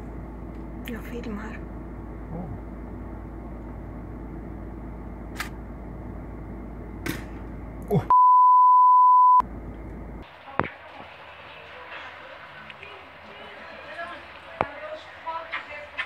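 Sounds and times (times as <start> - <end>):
low background hum: 0.0 - 8.2, 9.4 - 16.0
censor bleep: 8.1 - 9.4.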